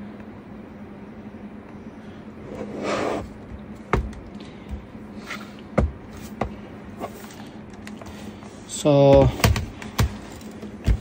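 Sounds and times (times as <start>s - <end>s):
faint steady hum: 0.0s - 11.0s
laptop knocks and clicks: 9.1s - 10.2s.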